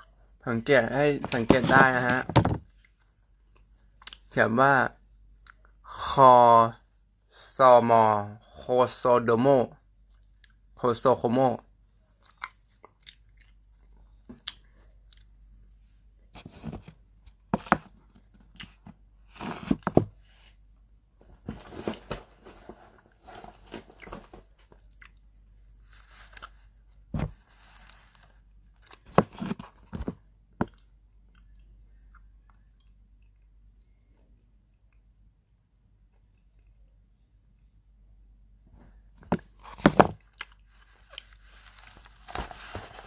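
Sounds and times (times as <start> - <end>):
chewing and crunching food: 2.7 - 4.4, 5.4 - 5.8, 9.9 - 10.7, 12.0 - 15.4, 17.7 - 19.9, 23.7 - 27.0, 27.6 - 30.0, 30.6 - 37.0, 39.6 - 42.2.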